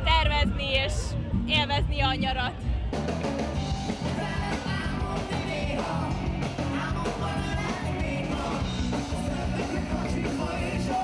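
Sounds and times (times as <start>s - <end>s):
steady drum beat: 1.4s - 11.0s
rock band playing live: 2.6s - 11.0s
woman singing: 4.0s - 8.7s.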